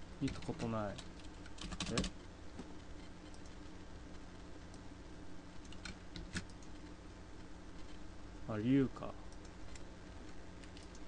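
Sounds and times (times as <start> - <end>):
faint steady hum: 0.0 - 11.0
keyboard and mouse clicks: 10.6 - 11.0.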